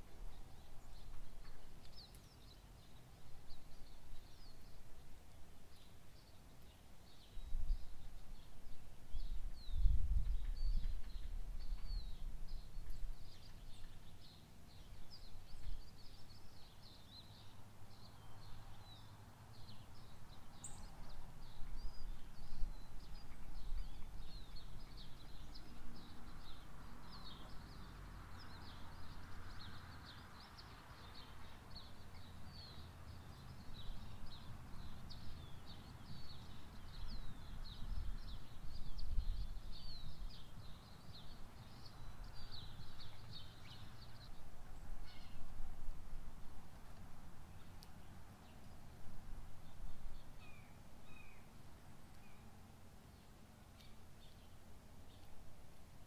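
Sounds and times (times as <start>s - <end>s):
songbirds chirping: 0.0s - 56.0s.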